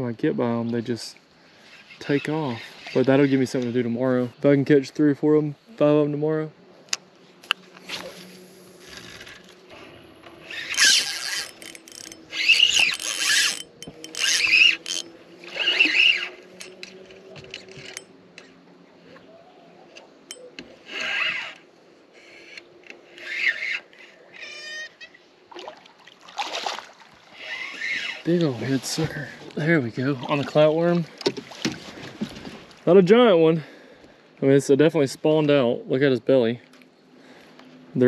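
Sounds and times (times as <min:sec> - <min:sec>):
faint motor hum: 0:05.5 - 0:25.9
fishing reel drag clicking: 0:08.0 - 0:18.5, 0:22.3 - 0:24.8, 0:27.4 - 0:28.4
water splashing: 0:25.5 - 0:29.0, 0:29.6 - 0:32.9.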